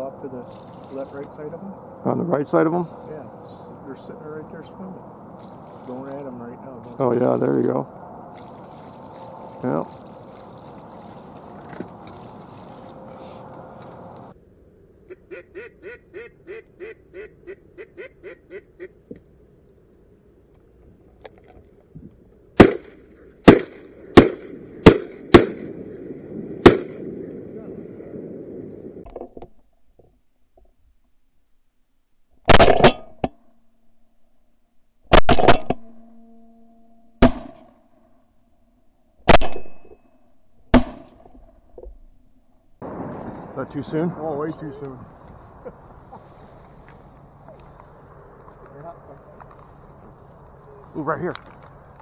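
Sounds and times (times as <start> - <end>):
duck quacks: 15.1 - 19.0
shotgun shots: 22.6 - 25.9, 26.6 - 27.2, 32.5 - 33.0, 39.3 - 39.8.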